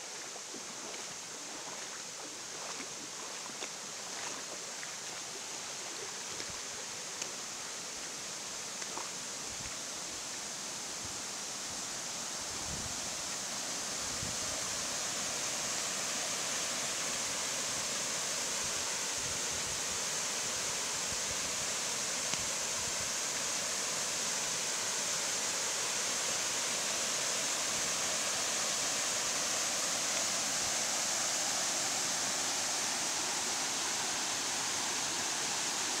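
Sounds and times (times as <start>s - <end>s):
waterfall rushing: 11.2s - 36.0s.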